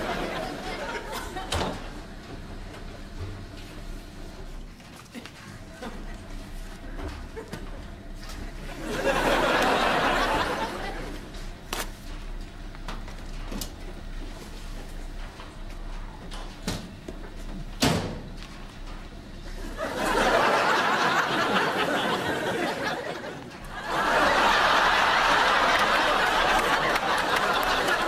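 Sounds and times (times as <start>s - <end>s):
studio audience laughter: 0.0s - 2.4s, 5.1s - 11.6s, 19.5s - 28.0s.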